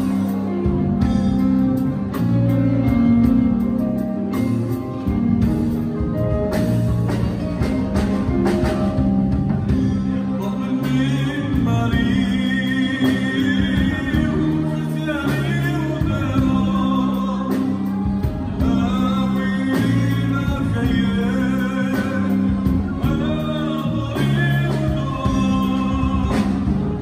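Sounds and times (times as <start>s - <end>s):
live band playing: 0.0s - 27.0s
man singing: 9.6s - 27.0s.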